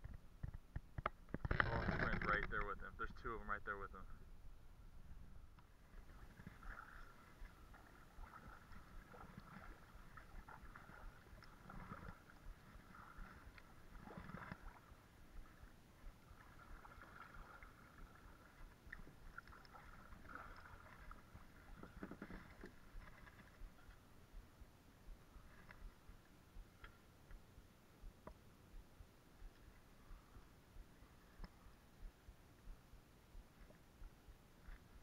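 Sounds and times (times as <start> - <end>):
paddle swishing and dripping: 5.5 - 27.4.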